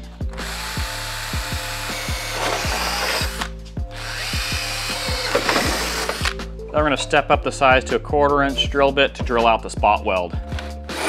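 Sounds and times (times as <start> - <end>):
background music with bass line: 0.0 - 11.0
cordless drill drilling metal: 0.3 - 6.4.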